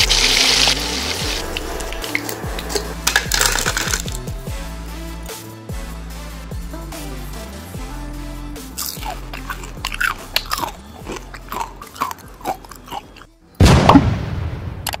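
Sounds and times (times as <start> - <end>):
crunchy bites and chewing: 1.4 - 4.2, 8.7 - 13.4
faint background music: 6.7 - 13.9.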